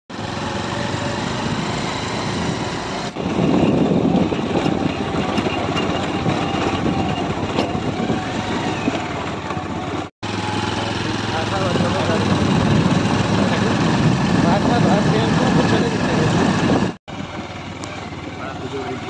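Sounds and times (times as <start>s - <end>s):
motorcycle engine running: 0.1s - 19.0s
wind rushing over microphone: 1.4s - 10.0s, 11.6s - 17.0s.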